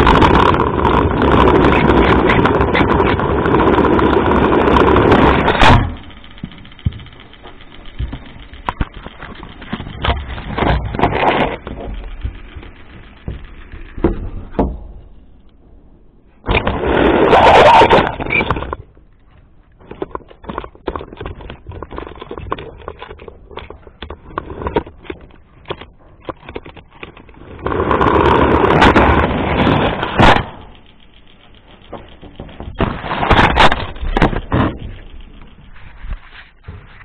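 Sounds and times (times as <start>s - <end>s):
small motor whirring: 0.0s - 14.5s
handling clicks and rattles: 0.0s - 16.8s, 17.4s - 37.0s.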